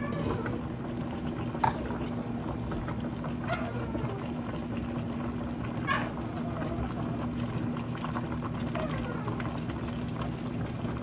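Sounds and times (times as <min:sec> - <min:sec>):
broth bubbling in pot: 0:00.0 - 0:11.0
constant hum: 0:00.0 - 0:11.0.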